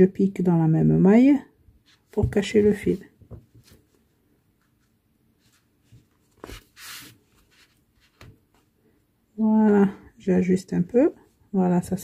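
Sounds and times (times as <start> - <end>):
scratchy yarn rustle: 4.6 - 8.4.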